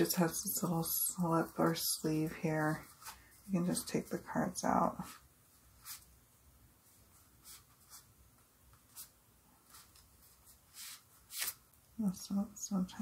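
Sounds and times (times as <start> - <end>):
faint paper rustles: 0.4 - 4.0, 6.9 - 11.7.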